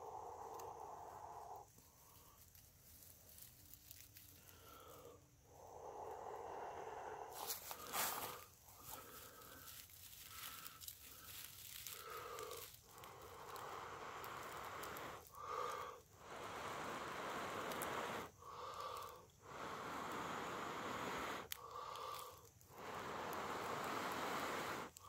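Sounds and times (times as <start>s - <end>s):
person blowing breaths: 0.0s - 2.6s, 3.9s - 25.0s
dry fibres rustling: 1.0s - 5.8s, 6.9s - 16.2s, 21.4s - 22.8s.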